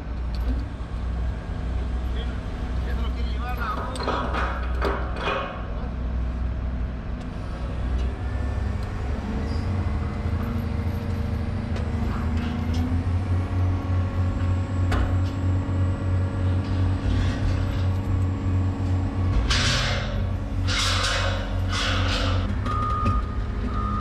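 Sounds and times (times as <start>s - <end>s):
excavator engine and hydraulics: 0.0s - 24.0s
sharp metal knocks: 19.4s - 22.8s.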